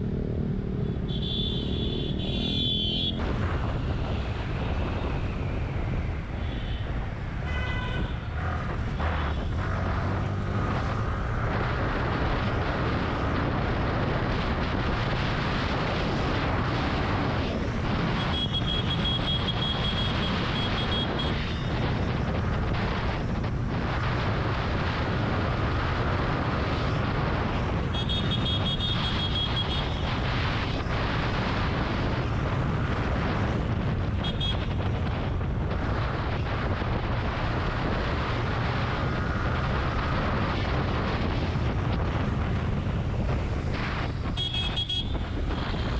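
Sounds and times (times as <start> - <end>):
motorcycle engine: 0.0 - 3.4
wind rushing over microphone: 0.0 - 45.9
vehicle horns: 0.8 - 3.3, 6.4 - 8.5, 18.2 - 21.7, 27.9 - 30.0, 34.1 - 34.8, 44.3 - 45.9.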